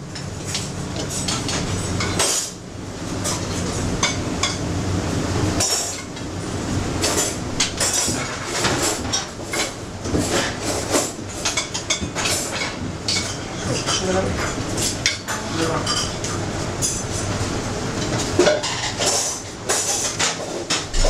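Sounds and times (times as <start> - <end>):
steady low hum: 0.0 - 21.0
utensils clinking against plates: 0.1 - 2.6, 5.6 - 6.2, 7.0 - 17.4, 18.0 - 21.0.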